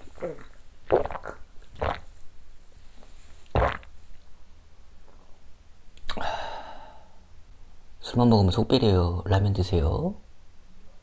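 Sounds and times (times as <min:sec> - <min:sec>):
man exhaling: 0:06.1 - 0:07.2
burst of breath: 0:06.2 - 0:07.2.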